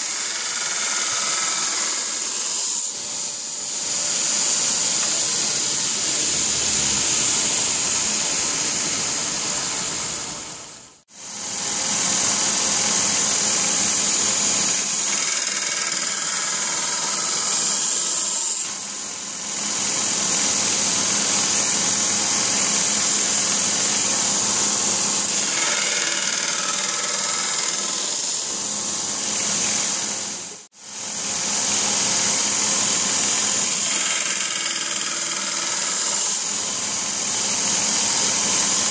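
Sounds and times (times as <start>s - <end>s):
belt grinder grinding steel: 0.0s - 2.9s, 24.4s - 28.3s, 33.6s - 36.5s.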